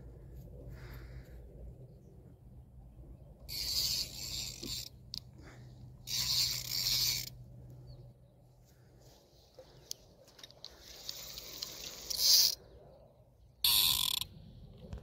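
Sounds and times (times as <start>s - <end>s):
fishing reel drag buzzing: 3.5s - 5.3s, 6.0s - 7.4s, 10.8s - 12.6s, 13.6s - 14.3s.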